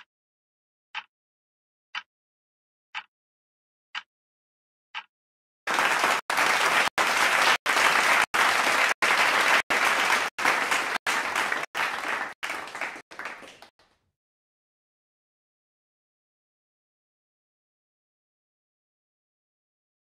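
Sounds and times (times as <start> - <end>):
applause sound effect: 5.7 - 13.7.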